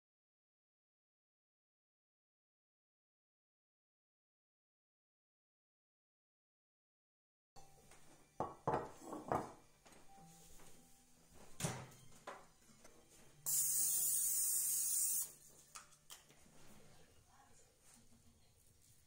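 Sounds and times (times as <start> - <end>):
glass dish set on wooden counter: 8.4 - 9.6
kitchen handling knocks: 8.4 - 9.6
aerosol spray hiss: 13.5 - 15.4.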